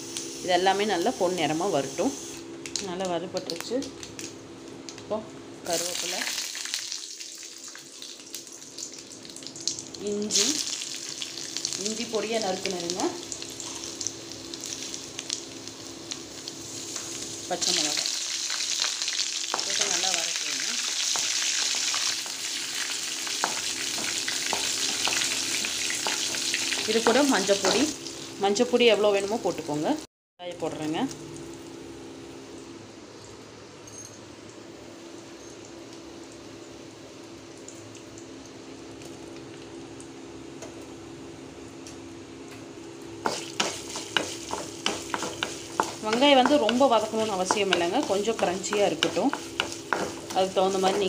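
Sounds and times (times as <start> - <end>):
chillies sizzling in oil: 0.0 - 2.3, 5.6 - 31.7, 43.0 - 51.0
spatula tapping a pan: 23.4 - 25.3, 43.3 - 51.0.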